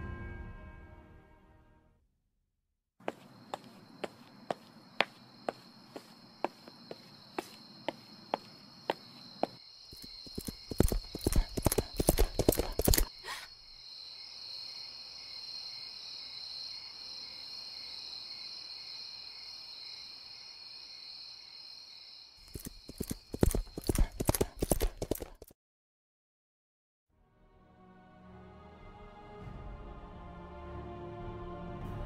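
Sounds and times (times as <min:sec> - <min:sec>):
footsteps: 0:03.0 - 0:13.4, 0:22.4 - 0:25.5
horse hooves clip-clopping: 0:09.9 - 0:13.1, 0:22.4 - 0:25.5.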